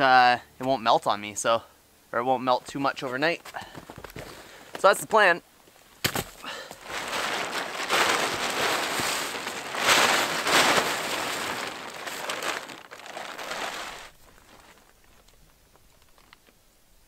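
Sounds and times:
plastic tarp rustling: 6.0s - 16.4s.

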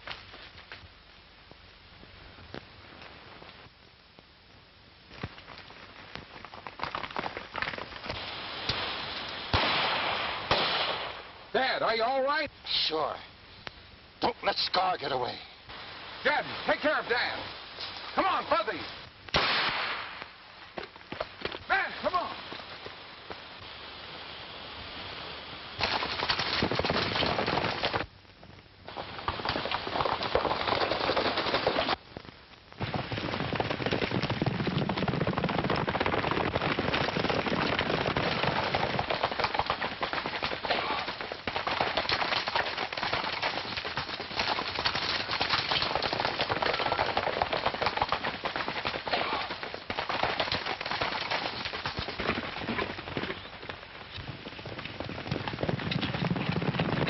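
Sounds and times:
galloping horses' hooves: 5.0s - 9.6s, 20.2s - 23.5s, 25.8s - 57.0s
gunshots: 9.5s - 11.3s, 19.3s - 20.2s, 37.4s - 48.3s, 49.0s - 50.6s.

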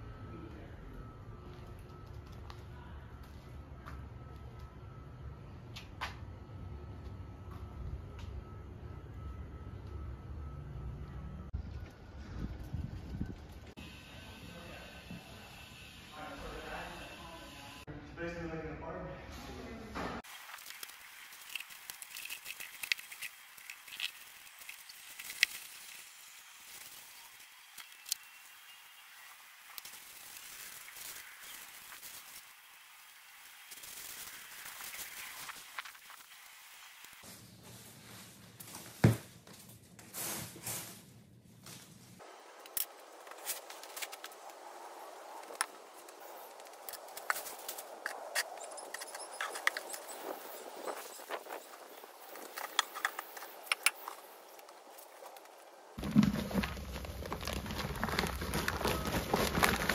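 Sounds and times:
steady outdoor hiss: 13.7s - 19.0s, 20.2s - 38.2s, 42.2s - 56.1s
soil rustling and scraping: 20.2s - 38.9s, 41.6s - 59.9s
plastic bag rustling: 56.0s - 59.9s.

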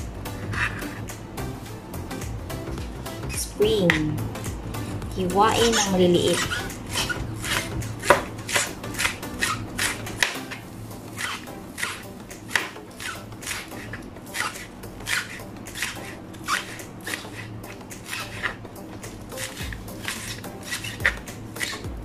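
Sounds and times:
knife chopping on cutting board: 5.5s - 10.6s, 11.2s - 22.0s.

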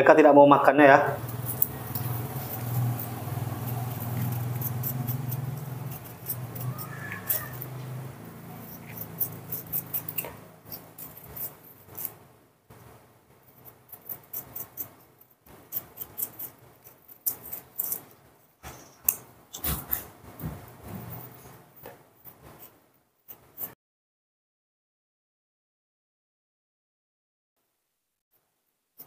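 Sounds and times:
knife scraping fruit skin: 1.2s - 12.2s, 13.5s - 23.8s.

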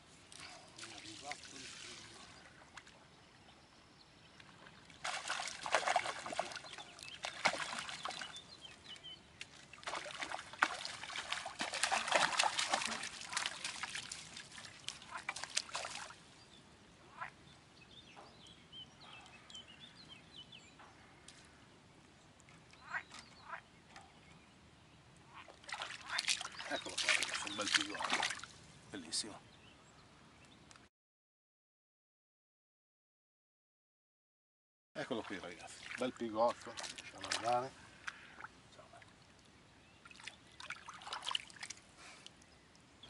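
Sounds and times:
water sloshing and dripping: 4.4s - 16.3s, 25.4s - 28.6s, 35.0s - 42.9s
fish splashing at the surface: 5.0s - 8.3s, 9.8s - 16.1s, 25.6s - 28.5s.

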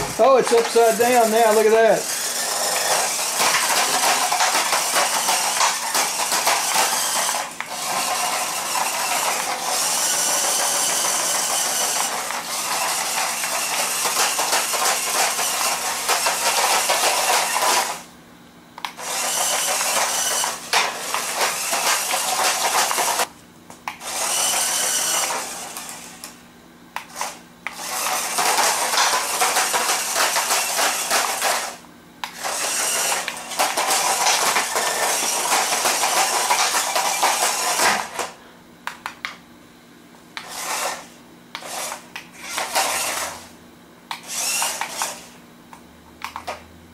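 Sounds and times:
toy car electric motors whirring: 0.0s - 18.1s, 18.8s - 23.3s, 24.0s - 26.3s, 27.0s - 38.4s, 40.4s - 43.5s, 44.1s - 45.4s
plastic wheels rattling on floor: 3.4s - 7.0s, 32.8s - 38.3s.

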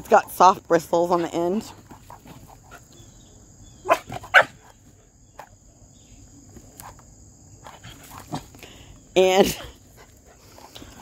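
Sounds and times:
puppy barking: 3.8s - 4.7s.

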